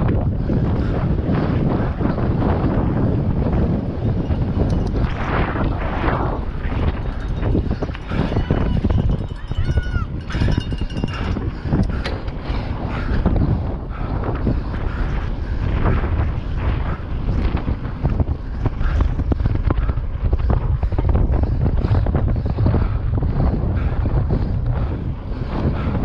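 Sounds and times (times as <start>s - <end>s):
wind rushing over microphone: 0.0s - 26.0s
bike clicks and knocks: 10.4s - 12.6s.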